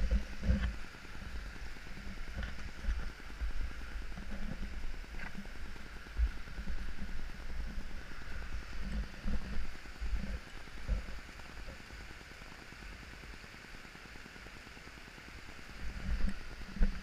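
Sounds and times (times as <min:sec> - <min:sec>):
small waterfall hissing: 0:00.0 - 0:17.0.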